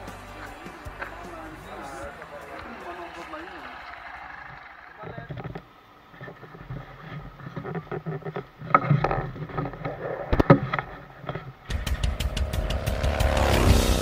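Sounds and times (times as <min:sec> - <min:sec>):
music with steady drum beat: 0:00.0 - 0:03.7, 0:11.7 - 0:14.0
motorcycle engine at low speed: 0:00.0 - 0:08.4, 0:10.6 - 0:14.0.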